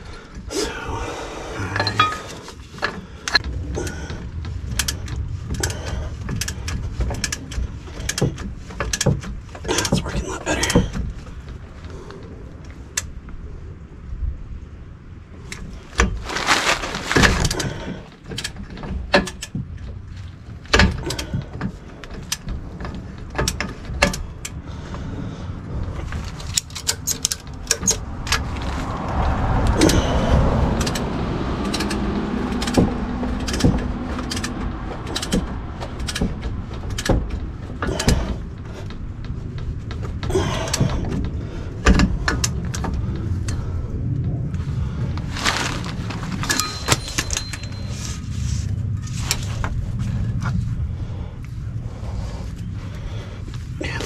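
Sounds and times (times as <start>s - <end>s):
scraping rolling sound: 0.0s - 12.9s, 15.7s - 18.3s, 25.1s - 54.0s
metal tools clicking and clanking: 1.6s - 11.0s, 26.3s - 28.4s, 30.8s - 39.0s, 46.3s - 49.4s.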